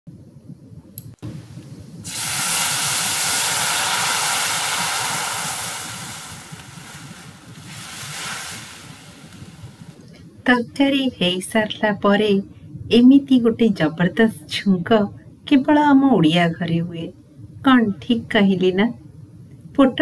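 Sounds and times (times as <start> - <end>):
hot oil sizzling: 2.0 - 10.0.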